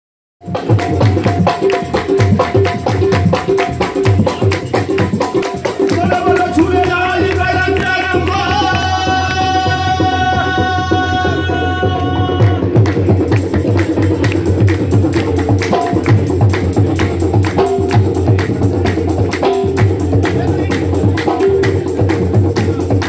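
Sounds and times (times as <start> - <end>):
hand claps: 0.8 - 9.4, 12.4 - 23.0
voices singing: 3.7 - 12.8.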